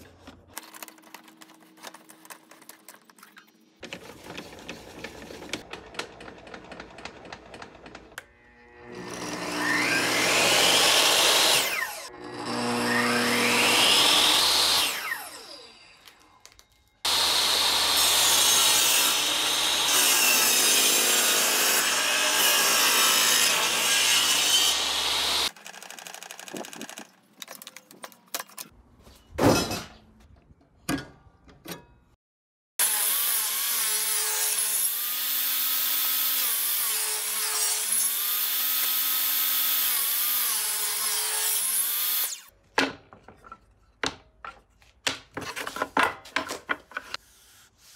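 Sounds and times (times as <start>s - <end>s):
table saw whining: 7.0s - 26.6s, 32.8s - 42.5s
saw blade cutting wood: 8.2s - 16.3s, 17.1s - 26.9s, 32.8s - 42.6s.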